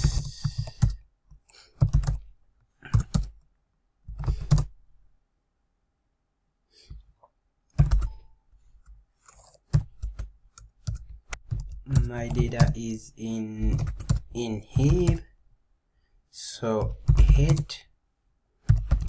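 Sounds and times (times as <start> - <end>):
computer keyboard typing: 0.0 - 1.0, 1.7 - 3.4, 4.1 - 4.7, 7.7 - 8.2, 9.3 - 12.8, 13.6 - 15.3, 16.8 - 17.8, 18.6 - 19.0.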